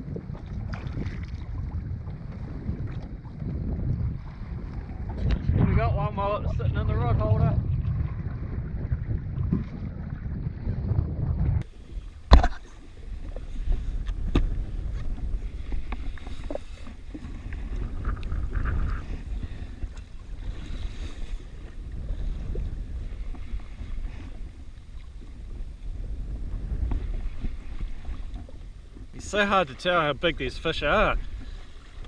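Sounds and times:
sea slapping against hull: 0.0s - 6.0s, 7.5s - 32.0s
wind buffeting microphone: 0.0s - 32.0s.

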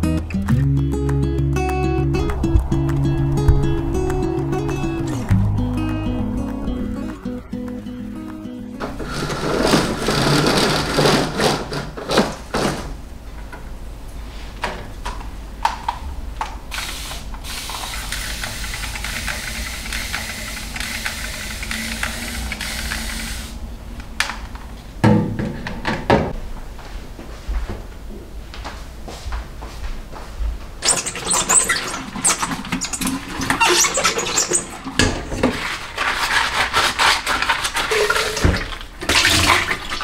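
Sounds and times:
household handling noise: 8.8s - 13.0s, 30.8s - 40.0s.

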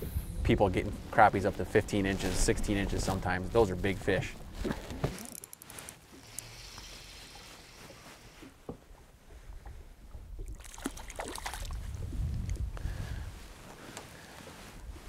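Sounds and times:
small waves lapping against boat: 4.1s - 12.7s
fish splashing at surface: 10.4s - 11.8s.

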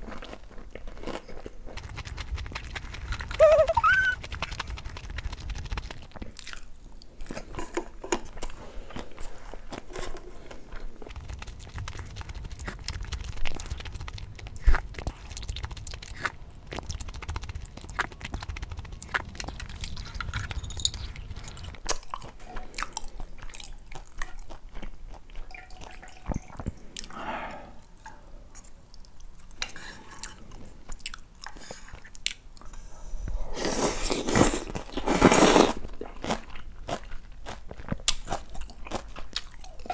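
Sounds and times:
chewing and crunching food: 0.0s - 27.2s, 28.5s - 32.7s, 33.5s - 39.9s
wet mouth clicks: 1.7s - 5.2s.

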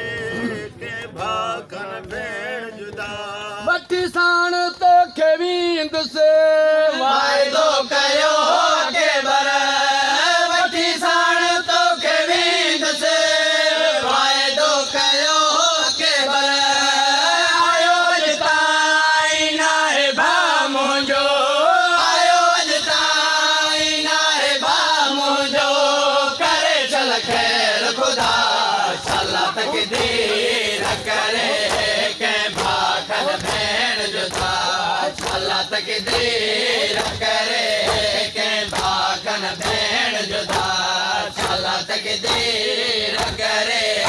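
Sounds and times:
crowd chanting: 0.0s - 4.0s, 6.0s - 44.0s
man singing: 0.0s - 8.8s.

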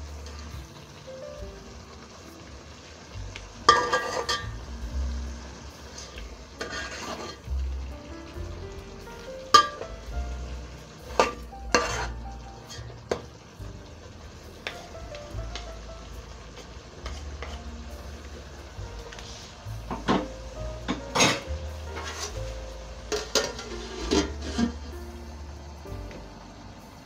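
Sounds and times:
low sizzle: 0.0s - 27.0s
spoon scraping metal pot: 3.7s - 4.5s, 5.9s - 7.5s, 11.1s - 13.2s, 17.0s - 17.6s, 21.2s - 22.4s, 23.1s - 24.9s.

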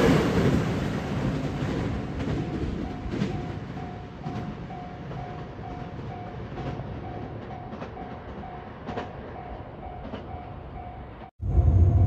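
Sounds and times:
electric train rumbling: 0.0s - 12.0s
level-crossing warning bell ringing: 2.2s - 11.6s.

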